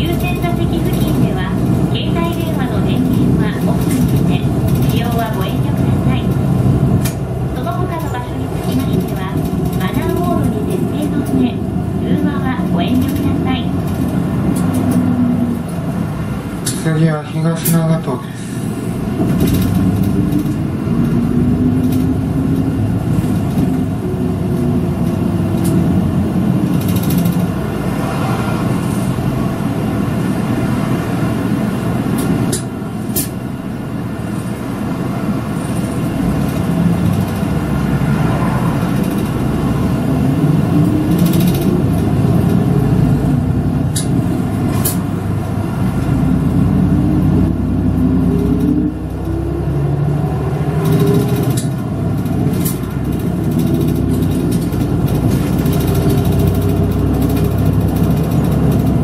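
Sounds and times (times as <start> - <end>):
bus engine accelerating: 0.0 - 59.0
road noise: 0.0 - 59.0
clicks and knocks from bus: 19.2 - 26.0, 50.8 - 59.0.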